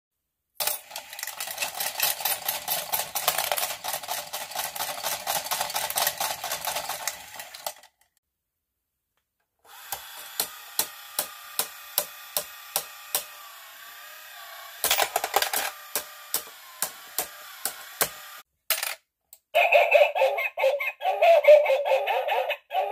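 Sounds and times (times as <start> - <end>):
regular plastic gear clicks: 0.6 - 8.1, 9.9 - 13.3, 14.8 - 18.2.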